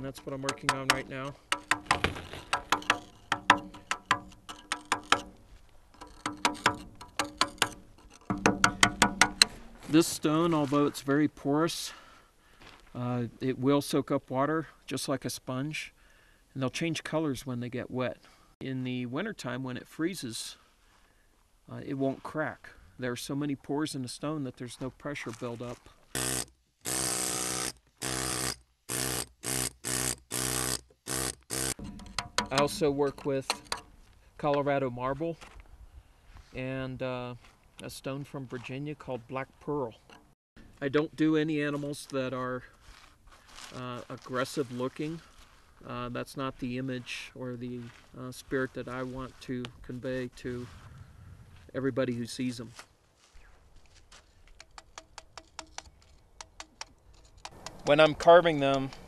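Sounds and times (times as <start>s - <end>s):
hammer striking chisel on stone: 0.5s - 5.3s, 6.0s - 9.6s, 31.7s - 33.8s.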